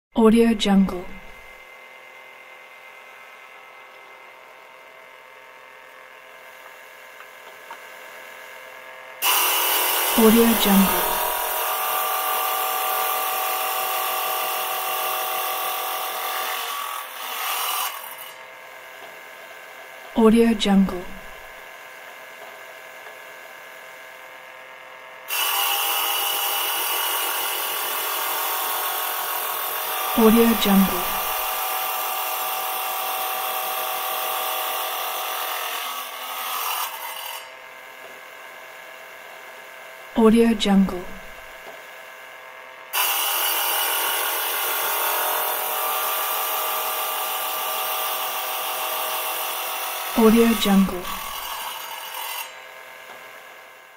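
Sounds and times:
tile cutter blade whining: 9.2s - 18.4s, 20.3s - 21.6s, 25.3s - 38.2s, 40.3s - 41.7s, 42.9s - 53.2s
faint hum: 20.2s - 21.6s.

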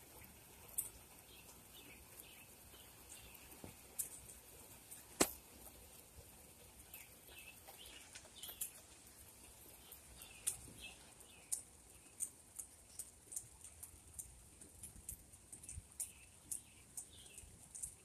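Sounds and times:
light rain patter: 0.0s - 18.0s
sharp drip ticks: 0.0s - 18.0s.

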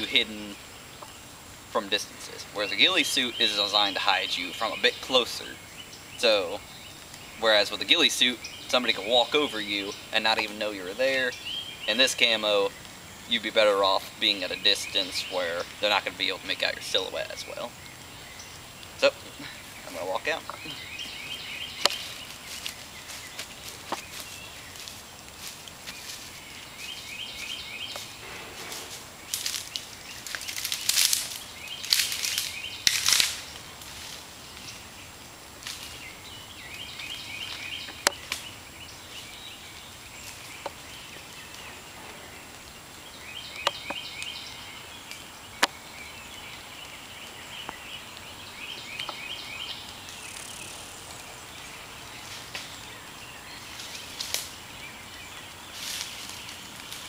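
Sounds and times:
steady hiss: 0.0s - 57.0s
loud rustling: 21.8s - 34.3s.

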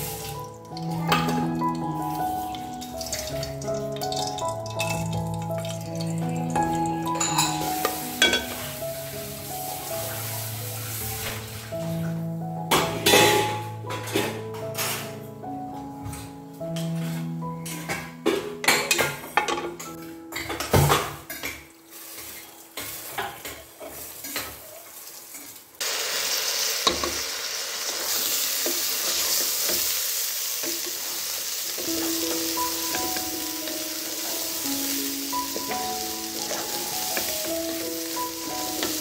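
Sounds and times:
rice sizzling in hot oil: 0.0s - 11.8s, 21.8s - 39.0s
knocks and clinks in metal pot: 7.2s - 8.6s, 12.7s - 14.3s, 18.6s - 21.6s
wooden spatula scraping: 21.9s - 25.4s.

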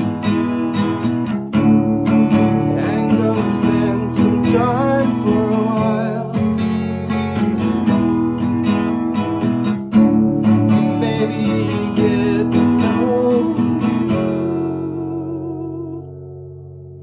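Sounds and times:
acoustic guitar strumming: 0.0s - 17.0s
woman singing: 10.9s - 16.2s.

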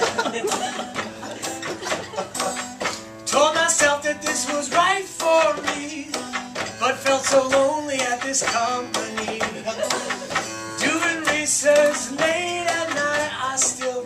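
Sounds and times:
strummed acoustic guitar: 0.0s - 14.0s
man singing: 3.2s - 14.0s.

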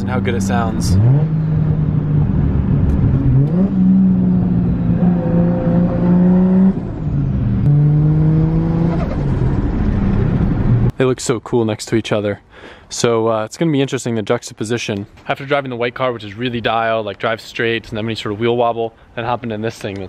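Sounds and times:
car engine running: 0.0s - 10.9s.

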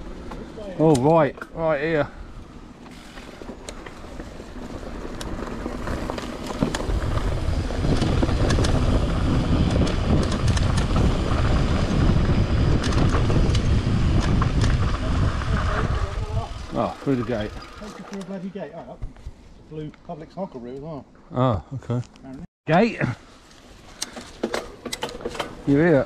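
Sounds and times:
bike tyre rumble on dirt: 0.0s - 19.4s
bike clicks and rattles: 0.1s - 1.7s, 2.8s - 18.4s, 23.8s - 26.0s
wind on microphone: 6.6s - 17.8s.

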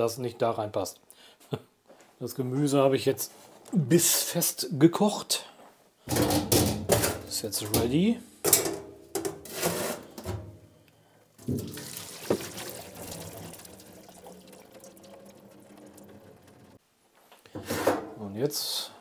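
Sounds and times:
metal pot clanking in sink: 6.1s - 7.9s, 8.5s - 9.5s, 11.4s - 16.8s
water pouring and splashing into sink: 11.4s - 16.8s.

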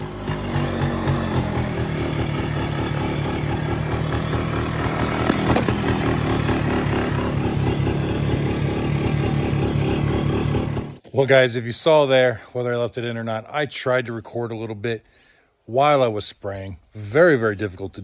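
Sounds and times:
atv engine idling fast: 0.0s - 11.0s.

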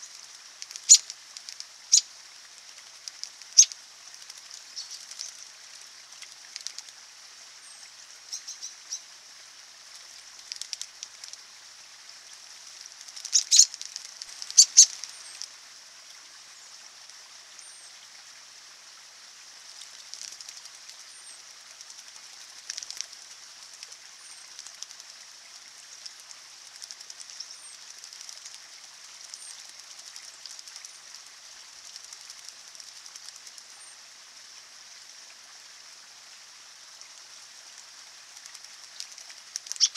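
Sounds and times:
birds splashing and fluttering in water: 0.0s - 39.9s
trickling stream: 0.0s - 39.9s
short high bird chirp: 13.3s - 13.7s.

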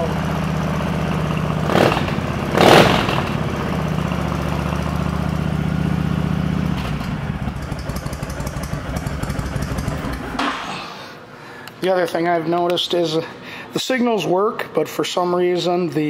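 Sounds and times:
motorcycle engine idling: 0.0s - 10.5s.

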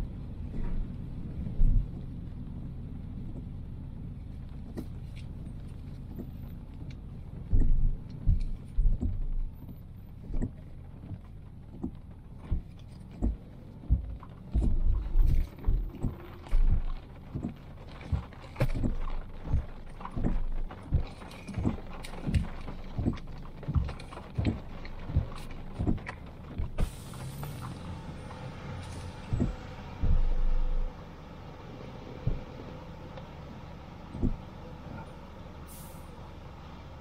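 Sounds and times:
car road and engine rumble: 0.0s - 37.0s
rain hiss: 15.0s - 37.0s.

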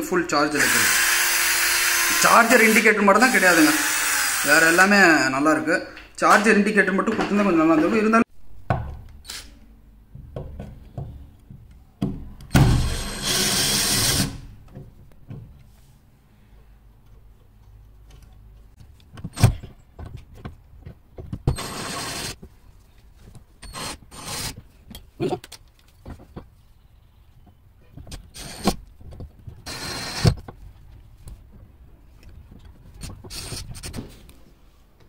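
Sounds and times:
cordless drill driving screws: 0.6s - 4.8s, 12.8s - 14.4s, 21.6s - 22.4s, 23.6s - 24.6s, 28.4s - 28.8s, 29.6s - 30.4s, 33.3s - 34.0s.

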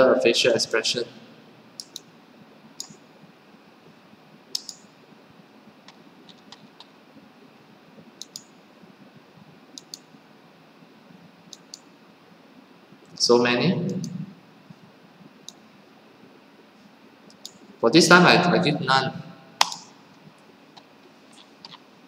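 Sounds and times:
faint steady hiss: 0.0s - 22.0s
mouse buttons clicking: 4.6s - 4.8s.

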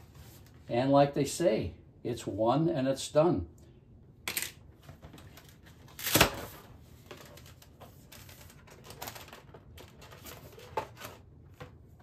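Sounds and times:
plastic packaging crackle: 7.1s - 11.0s.

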